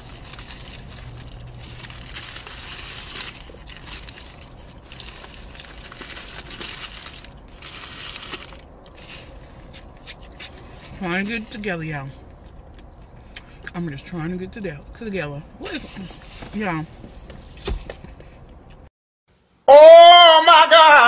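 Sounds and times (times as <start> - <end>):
paper wrapper crinkling: 0.0 - 10.6.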